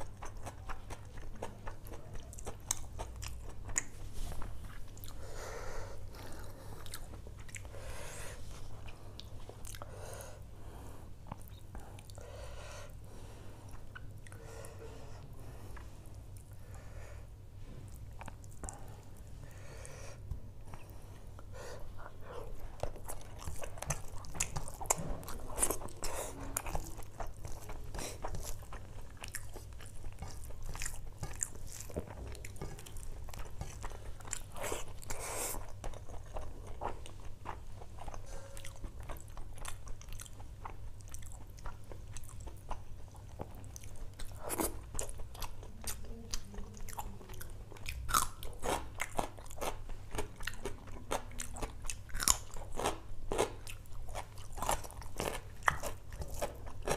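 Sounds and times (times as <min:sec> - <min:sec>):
wet chewing and crunching: 0:00.0 - 0:05.3, 0:06.1 - 0:09.9, 0:20.7 - 0:56.9.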